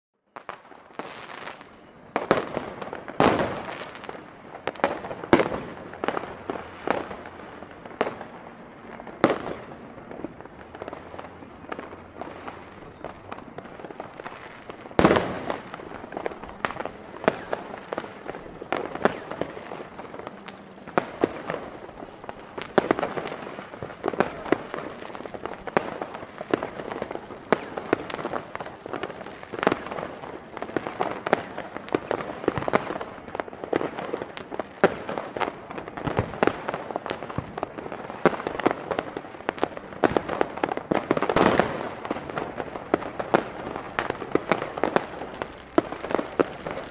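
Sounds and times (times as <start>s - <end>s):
firecrackers and rockets banging: 0.4s - 46.9s
fireworks crackling: 0.4s - 46.9s
distant explosions: 11.8s - 32.7s, 43.4s - 46.9s.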